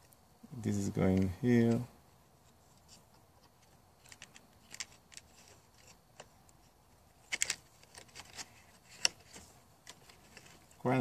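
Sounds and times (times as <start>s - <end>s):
vinyl pieces clicking and scraping: 2.4s - 10.9s.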